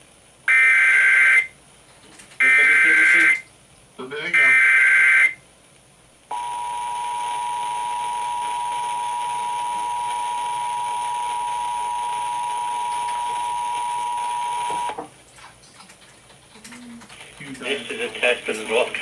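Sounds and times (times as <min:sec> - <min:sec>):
two-tone attention signal: 0:06.3 - 0:15.0.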